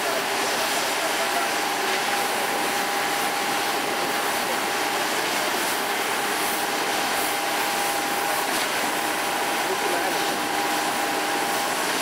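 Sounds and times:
construction machinery drone: 0.0 - 12.0
steady whine: 0.0 - 12.0.

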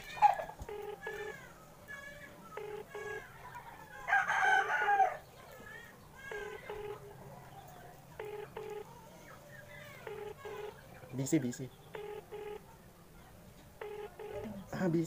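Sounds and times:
phone double beep tone: 0.7 - 1.3, 8.2 - 8.9, 10.1 - 10.8, 12.0 - 12.6, 13.8 - 14.5
rooster crowing: 2.6 - 5.2.

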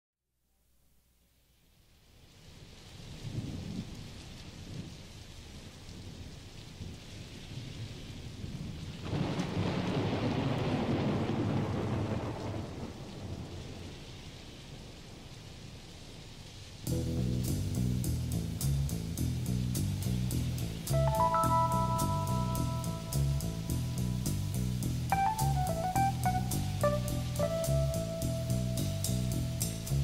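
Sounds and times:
rain hissing: 1.4 - 30.0
thunder rumbling: 8.2 - 14.2, 19.6 - 30.0.

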